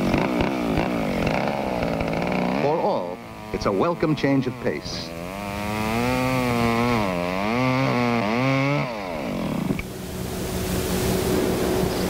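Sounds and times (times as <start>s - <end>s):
chainsaw engine revving: 0.0s - 10.5s
steady hiss with faint hum: 9.1s - 12.0s.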